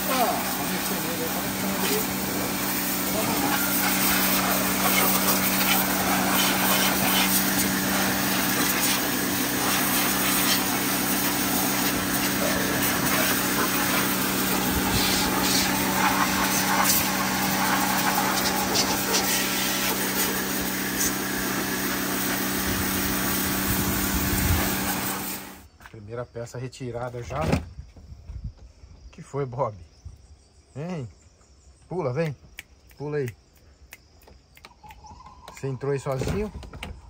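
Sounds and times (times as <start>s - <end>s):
pump motor humming: 0.0s - 25.7s
water jet hissing on metal: 0.0s - 25.7s.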